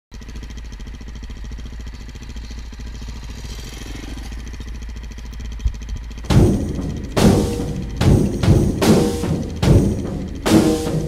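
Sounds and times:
dirt bike engine passing by: 0.2 - 6.2.

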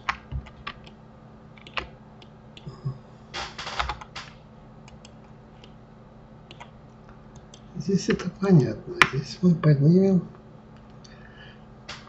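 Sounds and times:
keyboard keystrokes: 1.6 - 2.3, 6.5 - 6.7
mouse clicking: 4.9 - 5.8, 6.5 - 6.7, 7.4 - 8.2.

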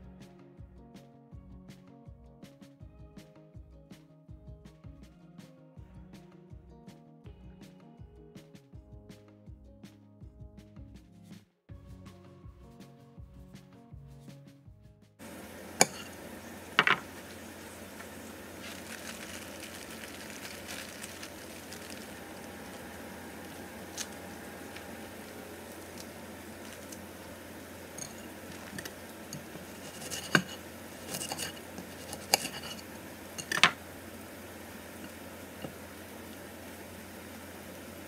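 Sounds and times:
plastic bag rustling: 15.2 - 33.7
steady low hum: 15.2 - 38.0.

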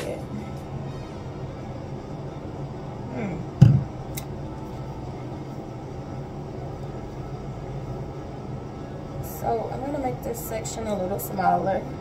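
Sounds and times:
steady low hum: 0.0 - 12.0
bottle thump on counter: 3.6 - 3.9.

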